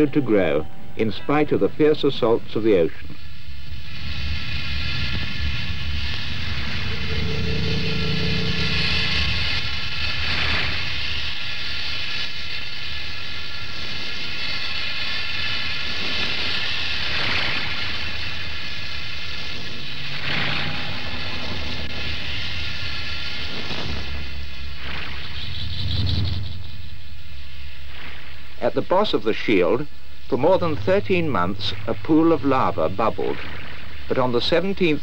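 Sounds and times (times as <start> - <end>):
volcanic eruption rumbling rush: 1.0 - 35.0.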